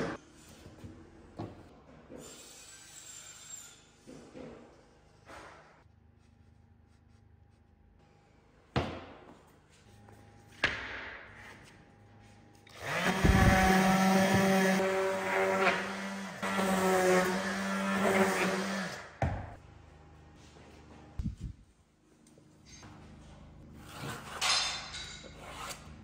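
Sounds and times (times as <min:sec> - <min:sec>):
orbital sander sanding wood: 0:12.8 - 0:19.0.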